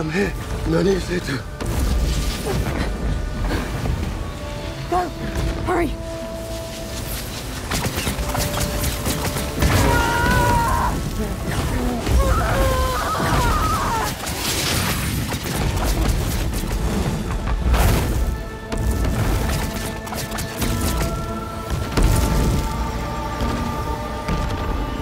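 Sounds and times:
continuous rumble: 0.0s - 25.0s
strained vocal cries: 9.6s - 14.2s.

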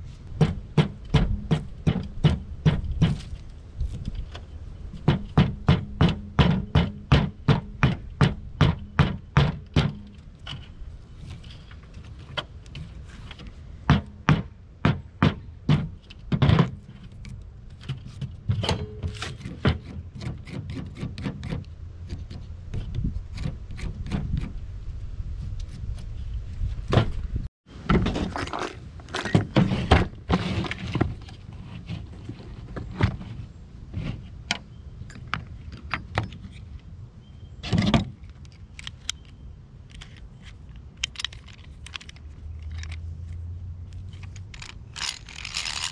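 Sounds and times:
wood scraping: 0.0s - 24.6s, 25.4s - 34.4s, 44.0s - 45.9s
hatchet striking wood: 0.4s - 3.3s.

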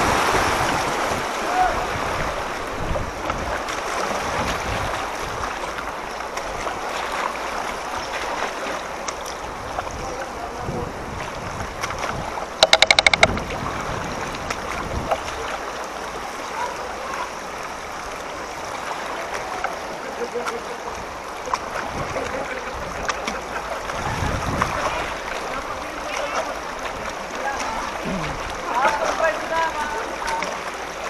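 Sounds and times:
flowing floodwater rushing: 0.0s - 31.0s
brief rapid buzzing: 12.6s - 13.4s.

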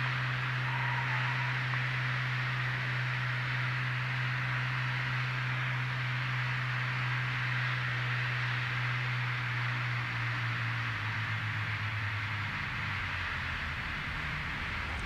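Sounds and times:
propeller engines droning: 0.0s - 15.0s.

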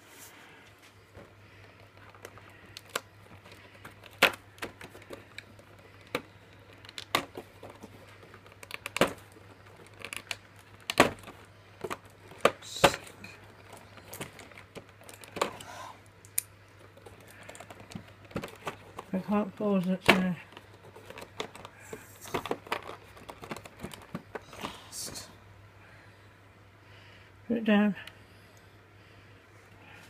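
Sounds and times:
faint low hum: 0.0s - 30.0s
fingers clicking on cardboard and plastic: 1.7s - 15.6s, 16.2s - 19.1s, 20.5s - 24.4s.

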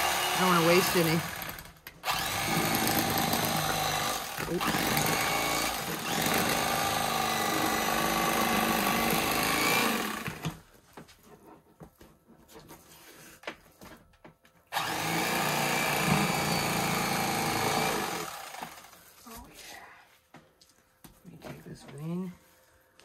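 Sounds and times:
electric knife motor buzzing: 0.0s - 10.6s, 14.7s - 19.0s.

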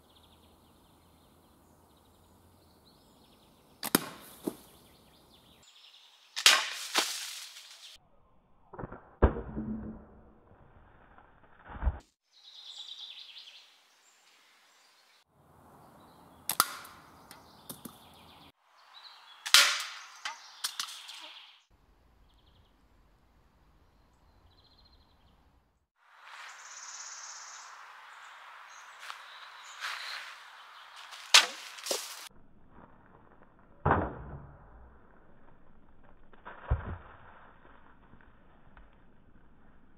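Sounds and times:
quiet outdoor ambience: 0.0s - 8.7s, 12.2s - 34.0s
slingshot cracks: 3.8s - 4.7s, 6.4s - 7.8s, 16.5s - 18.0s, 19.4s - 21.2s, 31.2s - 32.3s.

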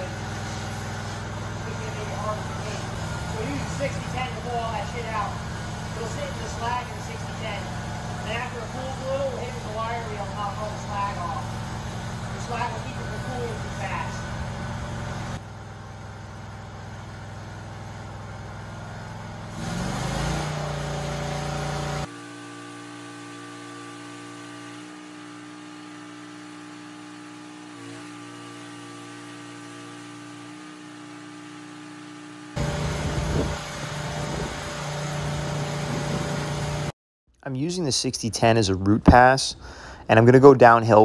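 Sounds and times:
engine droning: 0.0s - 22.1s, 32.6s - 36.9s.

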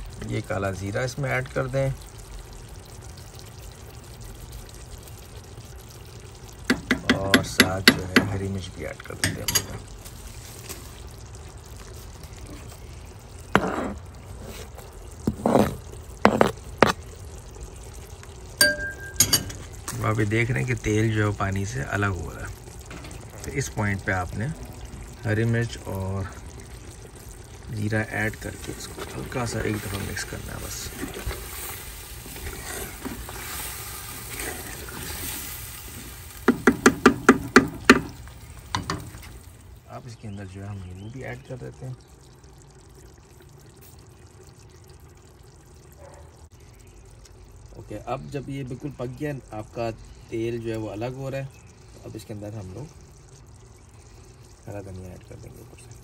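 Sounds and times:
curry simmering and sizzling: 0.0s - 56.0s
wooden spatula stirring: 13.5s - 17.0s, 26.4s - 39.3s.

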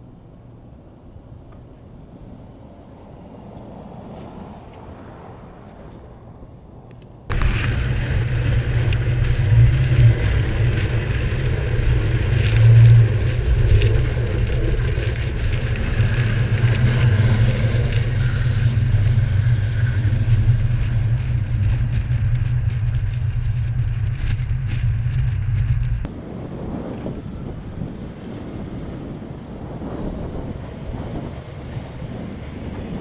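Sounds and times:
road and wind noise rumble: 0.0s - 33.0s
crackling clicks: 6.8s - 26.1s.

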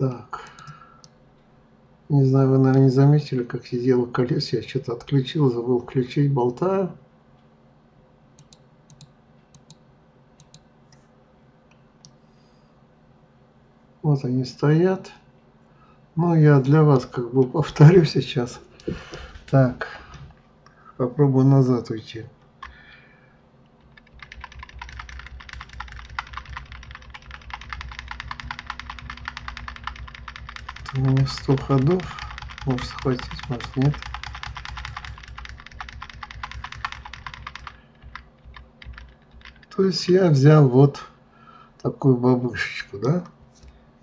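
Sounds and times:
low steady hum: 0.0s - 44.0s
computer mouse clicks: 0.4s - 1.2s, 8.4s - 9.8s, 10.4s - 11.1s, 23.8s - 39.7s
keyboard keys pressed rapidly: 23.8s - 40.2s.

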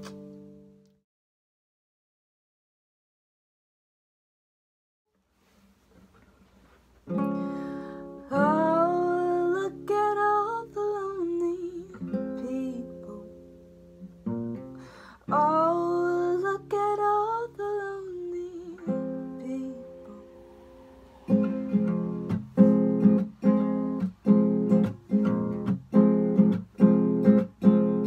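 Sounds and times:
acoustic guitar strummed chords: 7.1s - 28.0s
gliding guitar melody: 18.4s - 28.0s.

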